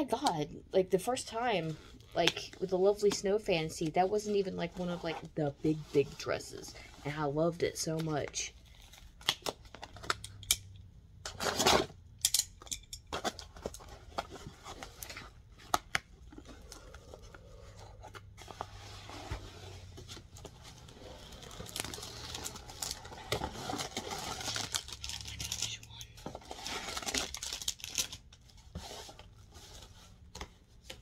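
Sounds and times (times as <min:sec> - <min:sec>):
cardboard box cut and torn: 0:11.3 - 0:11.9, 0:21.6 - 0:25.3
packaging rustling and crinkling: 0:13.1 - 0:31.0
cardboard ripping: 0:18.7 - 0:25.3.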